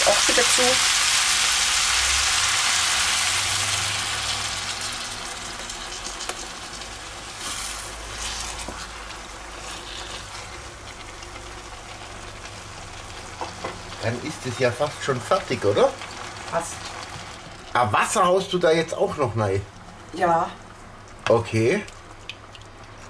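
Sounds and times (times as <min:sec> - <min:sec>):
food sizzling in frying pan: 0:00.0 - 0:23.0
wooden spatula scraping: 0:07.4 - 0:11.2.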